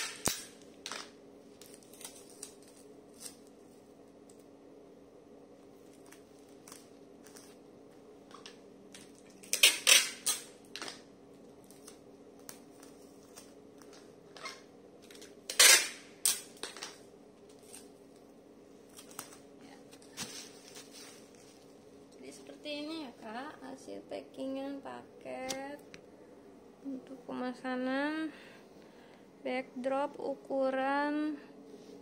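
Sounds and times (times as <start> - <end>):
bubble wrap crackling: 1.5 - 4.5, 18.8 - 21.8.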